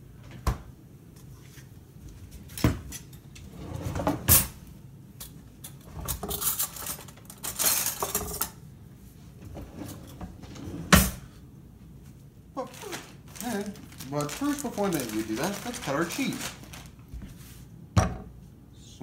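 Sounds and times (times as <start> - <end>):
utensils clattering and rummaging: 5.2 - 8.6, 12.7 - 17.0.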